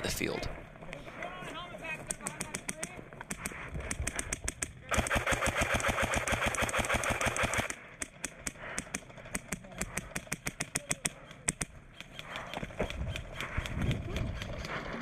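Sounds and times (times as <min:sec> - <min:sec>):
airsoft rifles firing full-auto: 0:03.8 - 0:11.2.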